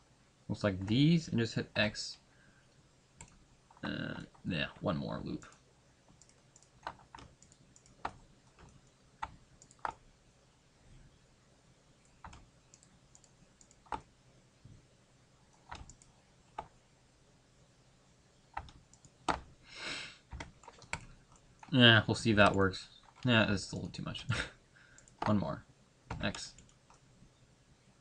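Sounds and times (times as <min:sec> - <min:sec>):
mouse and keyboard clicks: 0:06.2 - 0:10.0, 0:15.6 - 0:16.8, 0:18.6 - 0:19.5.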